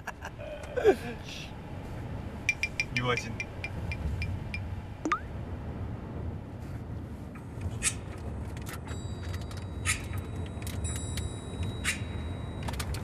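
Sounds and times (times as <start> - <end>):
car cabin road rumble: 0.0 - 13.0
thin high ringing tone: 2.4 - 5.3, 8.9 - 13.0.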